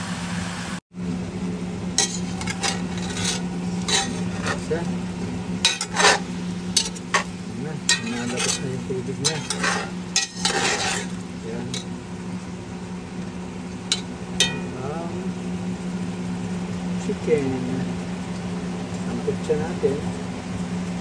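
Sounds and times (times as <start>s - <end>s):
chicken sizzling in a pot: 0.0s - 21.0s
low hum: 1.0s - 21.0s
metal spoon scraping a pot: 2.0s - 4.9s, 5.6s - 11.9s.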